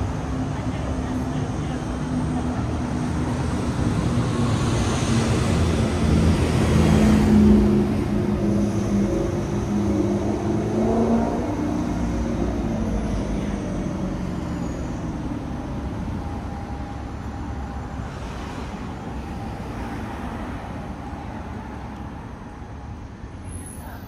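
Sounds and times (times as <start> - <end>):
steady traffic rumble: 0.0 - 24.0
vehicle passing by: 4.0 - 14.4.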